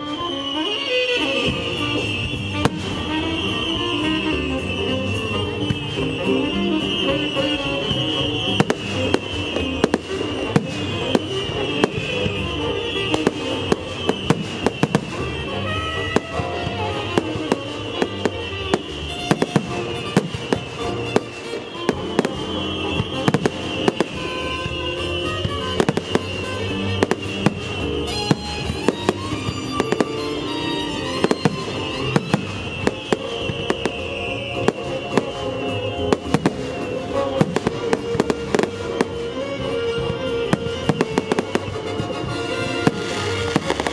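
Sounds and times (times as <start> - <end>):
fireworks bursting with bangs: 0.0 - 43.9
show music: 0.0 - 43.9.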